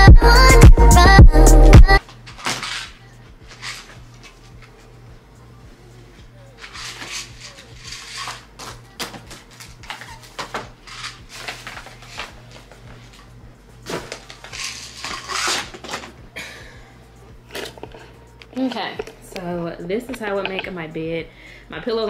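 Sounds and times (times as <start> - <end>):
small objects clattering and clinking: 2.3 - 4.0, 6.6 - 12.7, 13.8 - 16.2
steady low hum: 2.9 - 22.0
rustling of bedding and paper: 6.6 - 13.2.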